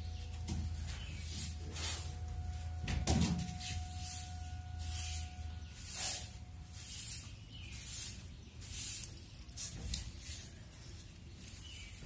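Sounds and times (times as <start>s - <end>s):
broom swishing on cement floor: 0.6s - 2.7s, 3.4s - 12.0s.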